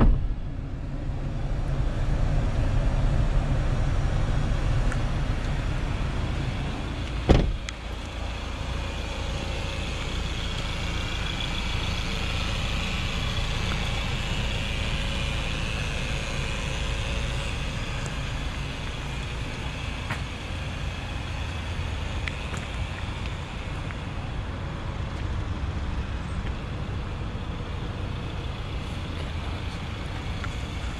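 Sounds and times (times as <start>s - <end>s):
van door slamming shut: 0.0s - 0.5s, 7.2s - 7.6s
steady low rumble: 0.0s - 30.9s.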